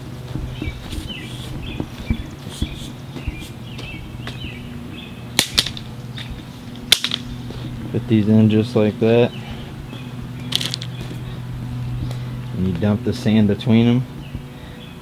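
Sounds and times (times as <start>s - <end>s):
birds chirping: 0.0s - 15.0s
steady low hum: 0.0s - 15.0s.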